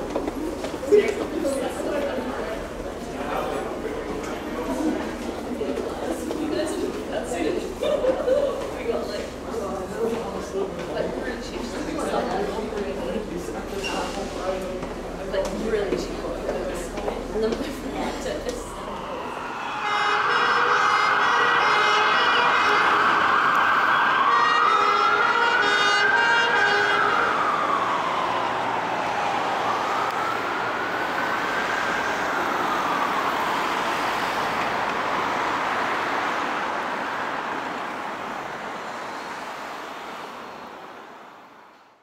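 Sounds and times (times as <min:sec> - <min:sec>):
emergency siren wailing: 0:18.0 - 0:40.9
vehicle horn blasts: 0:19.7 - 0:23.1.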